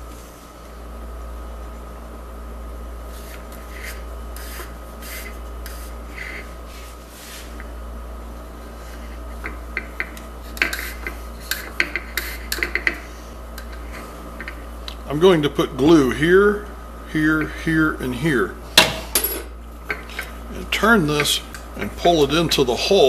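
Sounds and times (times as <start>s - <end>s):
wooden dowel rubbing through holes: 3.2s - 7.5s, 21.0s - 22.9s.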